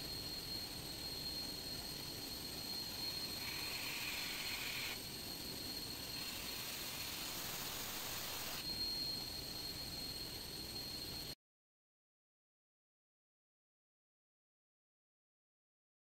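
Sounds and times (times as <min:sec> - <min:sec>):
high steady whine: 0:00.0 - 0:11.4
machinery drone and hiss: 0:00.0 - 0:11.4
higher hiss: 0:03.4 - 0:05.0, 0:06.2 - 0:08.7.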